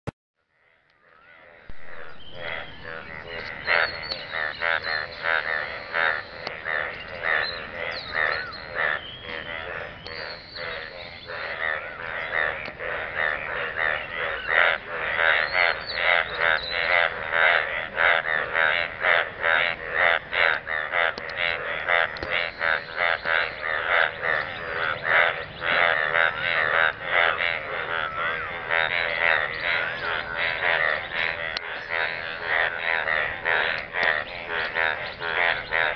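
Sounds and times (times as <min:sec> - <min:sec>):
frogs croaking: 0:00.4 - 0:35.9.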